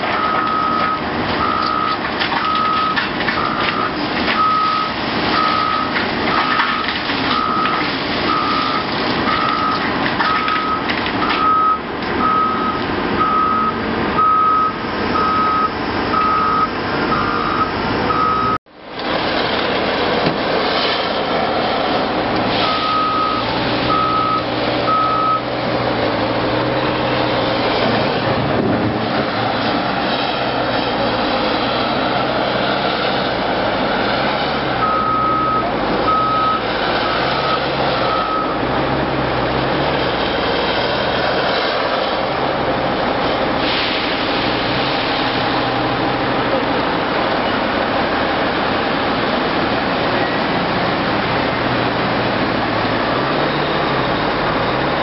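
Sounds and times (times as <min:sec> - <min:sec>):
diesel engines running under load: 0:00.0 - 0:55.0
reversing alarm beeping: 0:00.2 - 0:18.6, 0:22.6 - 0:25.5, 0:34.8 - 0:38.6.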